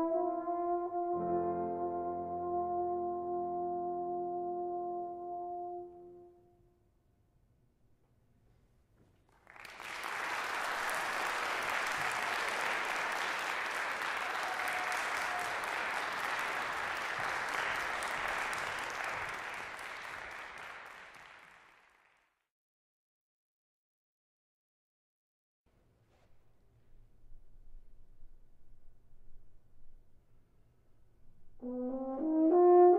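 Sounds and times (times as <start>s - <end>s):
audience applauding: 9.3s - 22.3s.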